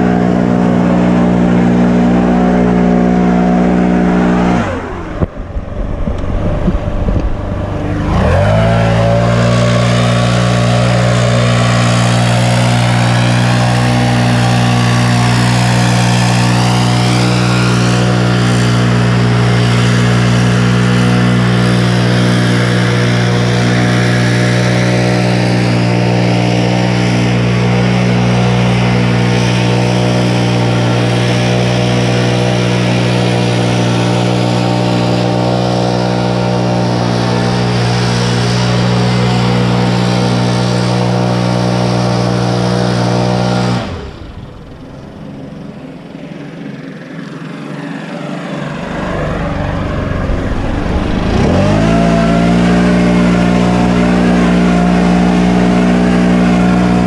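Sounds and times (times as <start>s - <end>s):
backpack blower droning: 0.0s - 57.0s.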